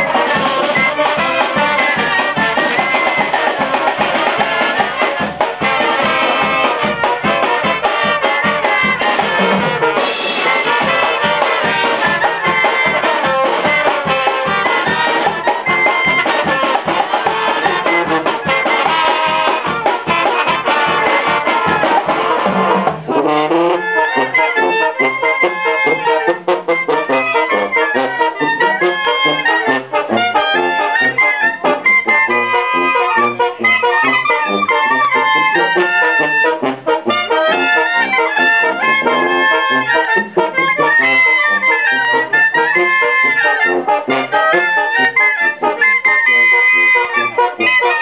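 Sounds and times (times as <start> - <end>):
bass drum: 0.0 - 44.8
brass band playing: 0.0 - 48.0
snare drums and congas: 0.0 - 48.0.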